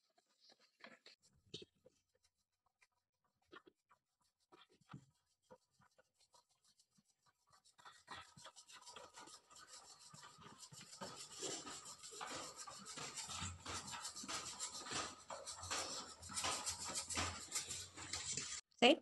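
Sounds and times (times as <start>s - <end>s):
utensil scraping metal bowl: 5.6s - 18.6s.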